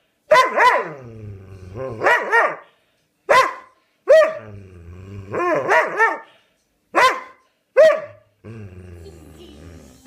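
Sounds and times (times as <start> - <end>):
dog barking and yowling: 0.3 - 1.1, 1.8 - 2.6, 3.3 - 4.6, 5.3 - 6.3, 7.0 - 8.2
dog grumbling: 0.9 - 2.0, 4.4 - 5.6, 8.4 - 10.0.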